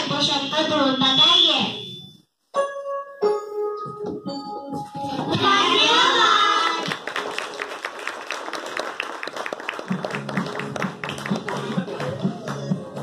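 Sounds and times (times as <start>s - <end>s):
music playing: 1.9s - 7.2s, 9.8s - 13.0s
audience clapping: 6.4s - 13.0s.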